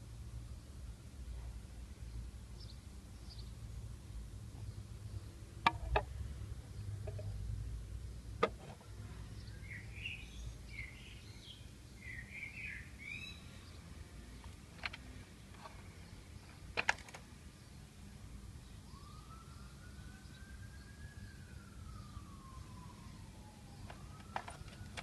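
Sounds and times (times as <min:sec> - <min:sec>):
low outdoor rumble: 0:00.0 - 0:12.2
bird chirping: 0:02.0 - 0:03.6, 0:09.2 - 0:14.6
plastic toy clicks and taps: 0:05.6 - 0:06.1.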